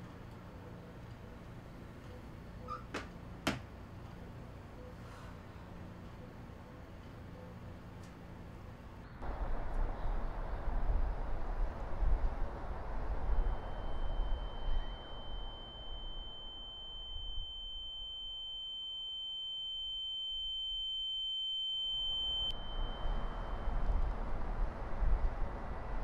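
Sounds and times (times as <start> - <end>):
low traffic rumble: 0.0 - 15.2, 22.6 - 26.0
high-pitched ringing tone: 12.9 - 24.3.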